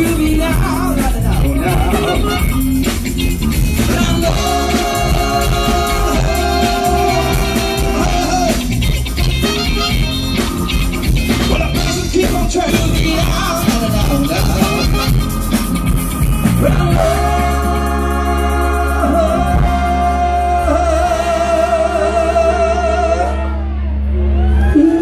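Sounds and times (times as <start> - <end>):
group of singers: 0.0 - 2.6, 3.8 - 8.8, 16.4 - 23.8
live funk rock band: 0.0 - 25.0.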